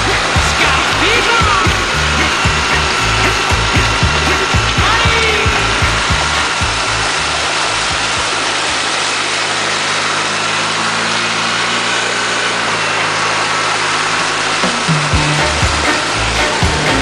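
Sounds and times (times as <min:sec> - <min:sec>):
quad engine running: 0:00.0 - 0:17.0
rush of water: 0:00.0 - 0:17.0.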